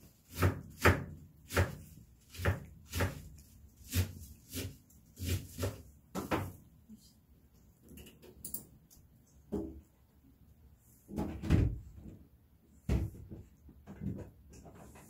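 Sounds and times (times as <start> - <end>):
soft knocks and thumps: 11.1 - 15.0.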